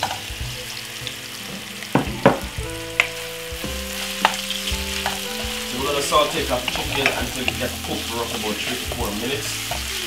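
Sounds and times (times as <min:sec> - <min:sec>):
chicken sizzling in hot oil: 0:00.0 - 0:10.0
wooden spoon knocking on pan: 0:01.9 - 0:08.1.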